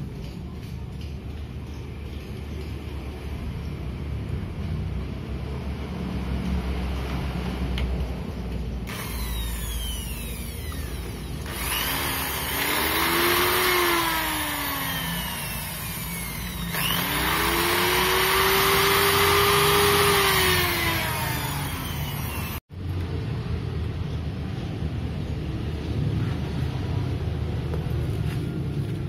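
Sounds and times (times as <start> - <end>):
electric drill drilling: 8.9 - 22.6.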